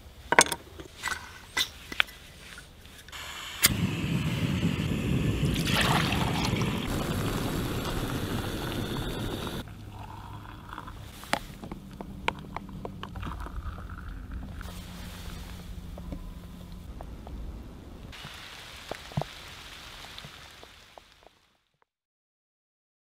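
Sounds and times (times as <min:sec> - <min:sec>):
gas burner roaring: 0:03.1 - 0:09.7
hot water pouring: 0:03.2 - 0:11.2.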